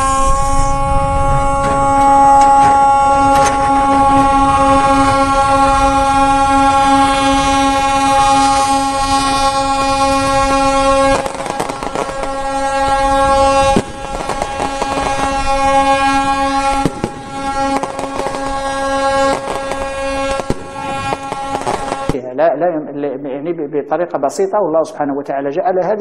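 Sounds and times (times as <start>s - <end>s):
ship's horn blast: 0.0s - 22.2s
sharp cracks and knocks: 1.6s - 4.4s.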